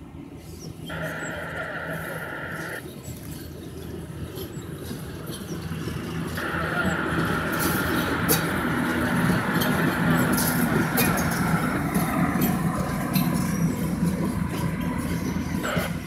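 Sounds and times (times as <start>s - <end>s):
locomotive motors humming: 0.0s - 16.0s
wagons rolling over rails: 0.7s - 16.0s
sharp rail clicks: 4.3s - 16.0s.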